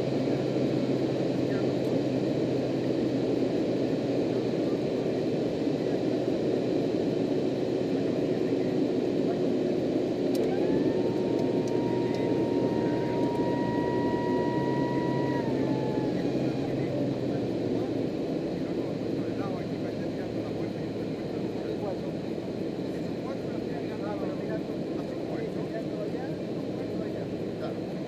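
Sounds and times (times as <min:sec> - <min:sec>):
turboprop cockpit drone: 0:00.0 - 0:28.0
high whine: 0:10.3 - 0:18.9.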